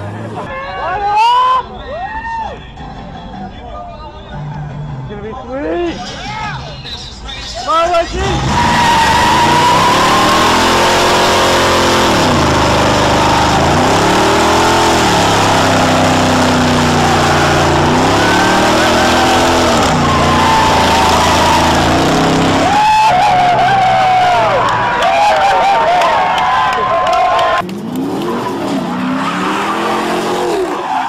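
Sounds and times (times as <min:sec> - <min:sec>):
tyres squealing: 0:08.1 - 0:24.6
car engine revving: 0:08.1 - 0:31.0.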